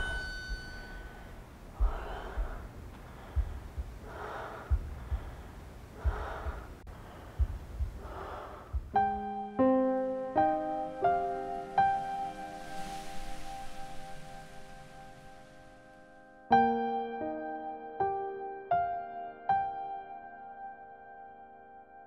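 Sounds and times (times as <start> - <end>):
woman breathing heavily: 0.0 - 9.5
piano notes: 0.0 - 22.0
dull low thuds: 1.6 - 9.8.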